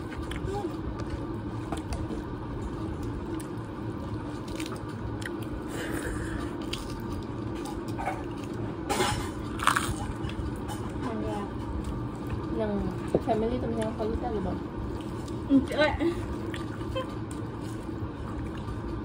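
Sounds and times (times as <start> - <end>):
soft chewing: 0.0 - 8.8, 9.4 - 19.0
loud crisp crunches: 6.6 - 10.6.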